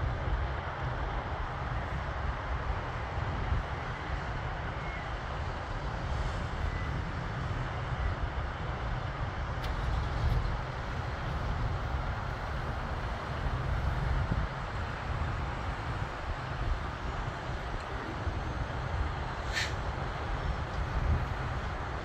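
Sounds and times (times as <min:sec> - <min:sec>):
distant jet rumble: 0:01.9 - 0:22.0.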